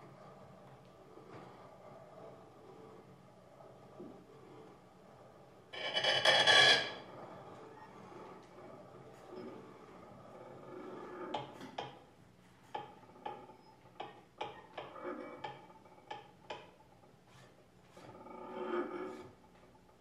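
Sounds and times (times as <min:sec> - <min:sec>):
soft scraping on small objects: 0:00.0 - 0:11.7.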